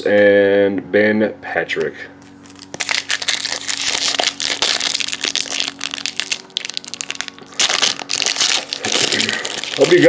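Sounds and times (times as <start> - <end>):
foil wrapper crinkling: 2.2 - 10.0.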